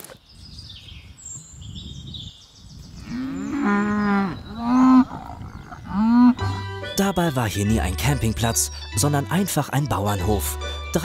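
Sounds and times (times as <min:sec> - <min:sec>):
cows mooing: 0:03.0 - 0:06.9.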